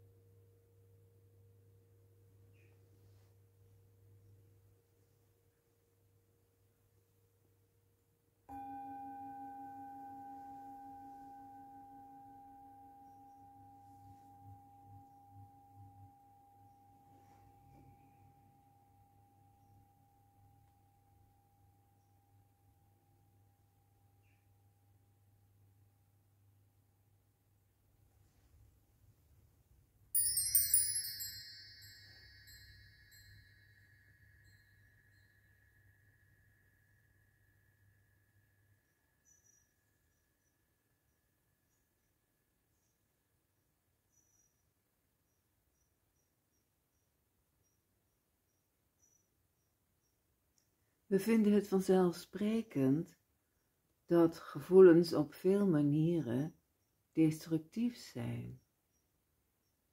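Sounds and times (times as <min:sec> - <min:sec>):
bar chimes shimmering: 0:08.5 - 0:19.5, 0:30.2 - 0:36.5
metal singing bowl ringing: 0:08.5 - 0:22.1, 0:30.2 - 0:39.6.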